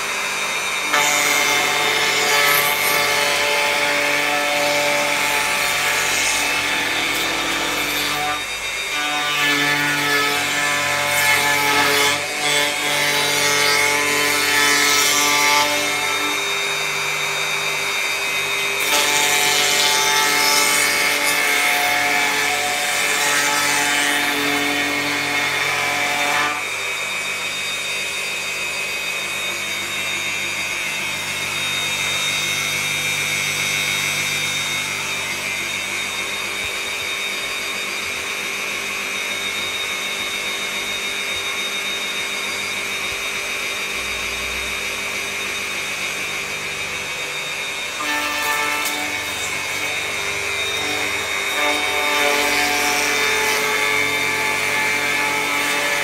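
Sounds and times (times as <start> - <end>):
electric router cutting wood: 0.0 - 56.0.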